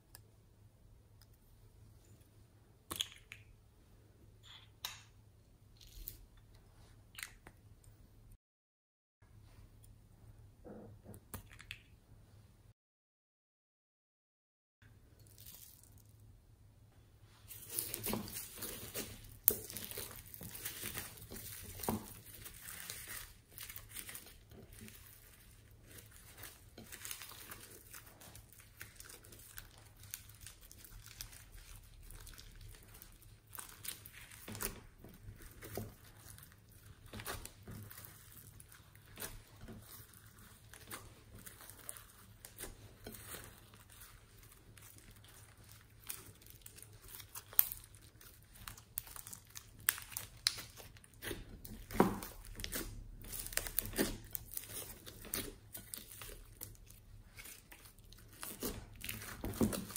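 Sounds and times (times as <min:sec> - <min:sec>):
slime squelching: 0:15.2 - 0:16.3, 0:17.2 - 0:59.9.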